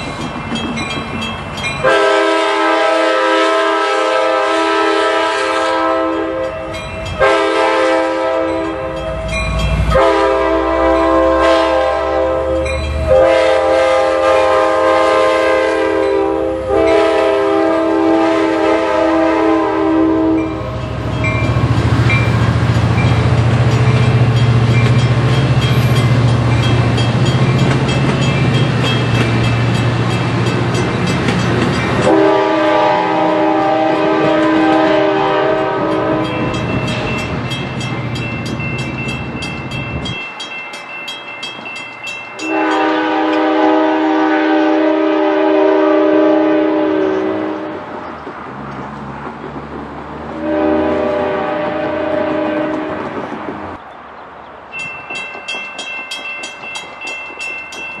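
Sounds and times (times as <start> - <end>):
train cars rumbling and clattering: 0.0 - 58.0
train air horn blasts: 1.8 - 21.2, 32.0 - 36.6, 42.4 - 47.9, 50.3 - 53.3.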